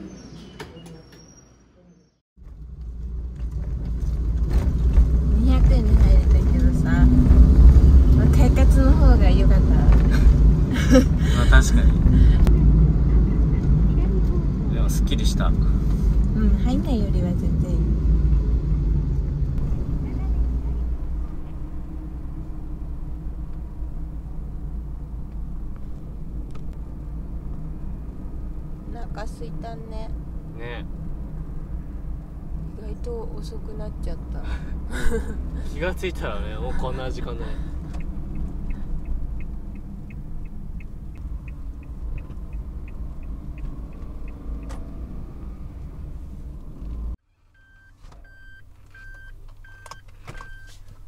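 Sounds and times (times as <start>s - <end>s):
van road and engine rumble: 0.0s - 51.0s
turn-signal relay ticking: 37.8s - 44.7s
electronic warning beep: 47.6s - 50.7s.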